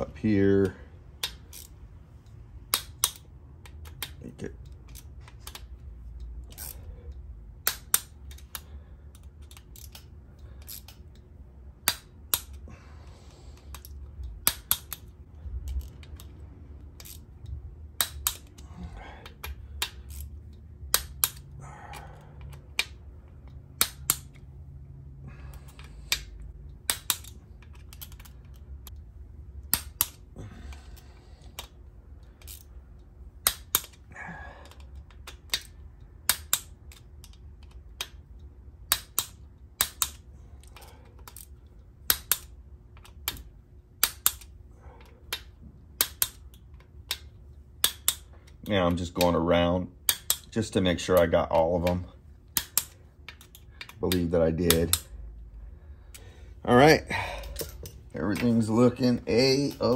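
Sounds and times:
torque wrench clicking: 1.2s - 12.6s, 13.6s - 18.6s, 19.2s - 24.4s, 25.7s - 29.0s, 33.4s - 44.5s, 45.2s - 49.4s, 50.0s - 55.2s.

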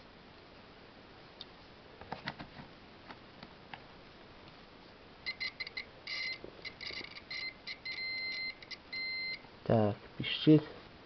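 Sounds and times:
multimeter continuity buzzer beeping: 5.2s - 9.4s.

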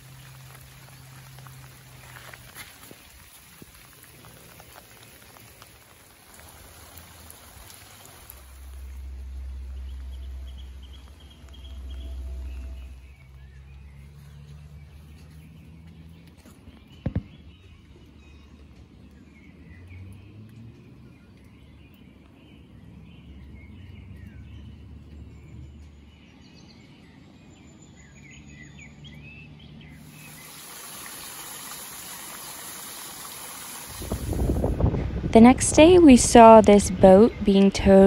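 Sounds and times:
small birds chirping: 0.0s - 34.6s
low rumble: 8.2s - 15.8s
steady hiss: 30.0s - 34.9s.

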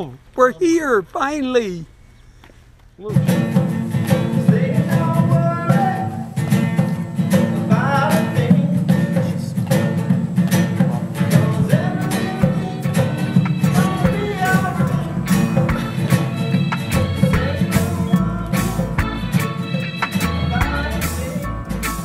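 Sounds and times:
acoustic guitar strumming: 3.0s - 22.0s
person singing: 4.1s - 6.4s, 10.9s - 22.0s.

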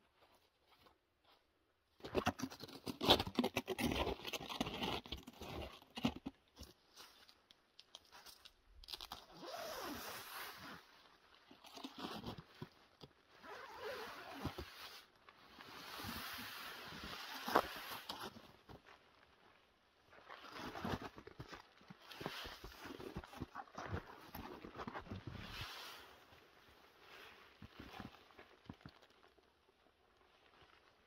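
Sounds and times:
tent fabric rustling: 9.0s - 12.5s, 13.2s - 19.3s, 22.0s - 28.4s.

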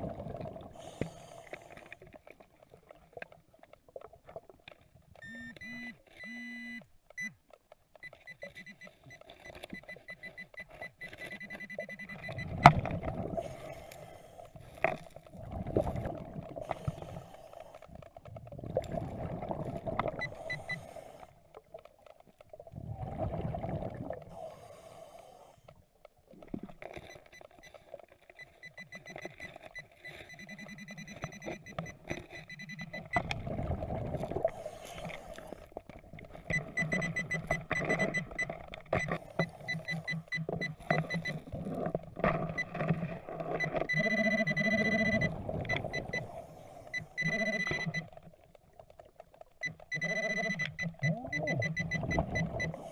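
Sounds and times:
rushing bubbles underwater: 0.0s - 1.0s, 12.2s - 13.9s, 14.6s - 17.3s, 17.9s - 20.6s, 22.5s - 24.6s, 32.9s - 49.1s, 51.0s - 52.9s
metal detector fast beeping: 5.2s - 7.3s, 8.0s - 12.6s, 28.4s - 33.2s, 36.5s - 41.4s, 43.6s - 46.3s, 46.9s - 48.1s, 49.6s - 52.9s.

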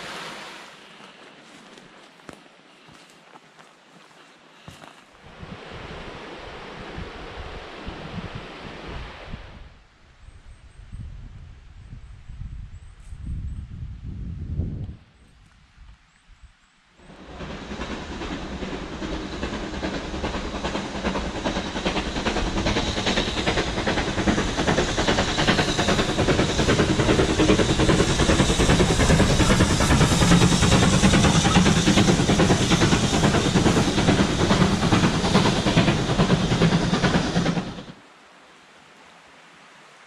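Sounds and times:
steam locomotive passing: 0.0s - 9.7s, 17.0s - 38.0s
steam exhaust hissing: 17.0s - 38.0s
train wheels clattering on rails: 17.1s - 38.0s.

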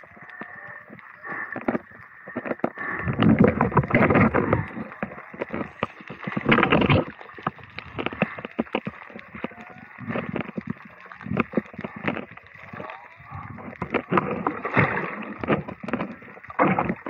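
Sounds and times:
muffled water sloshing underwater: 0.0s - 17.0s
water rushes: 0.0s - 17.0s.

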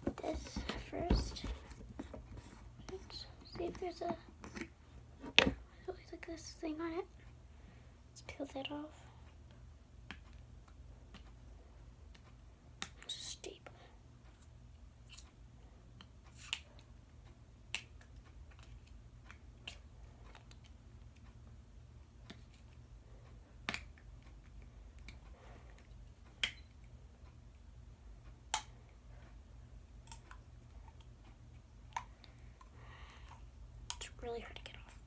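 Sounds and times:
faint low hum: 0.0s - 35.0s.

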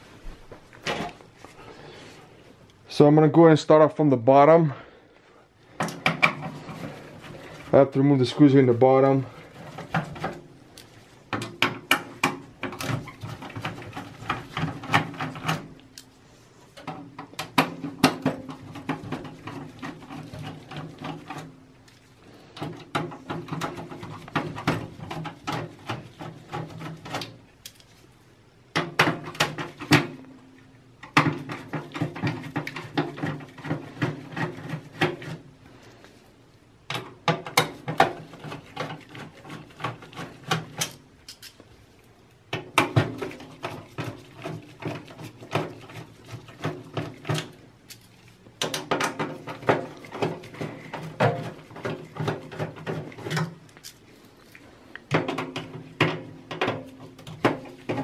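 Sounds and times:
screwdriver clicking and scraping: 27.2s - 28.0s, 40.8s - 41.6s, 53.2s - 54.1s.

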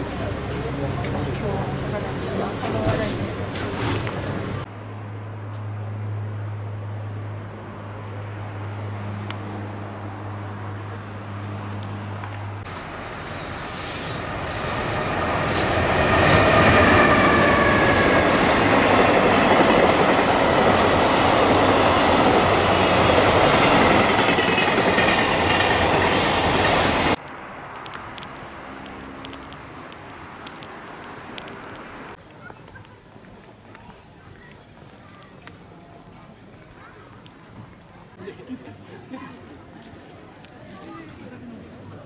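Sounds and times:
freight train passing: 0.0s - 32.2s
wheels clattering over rails: 18.4s - 27.2s.

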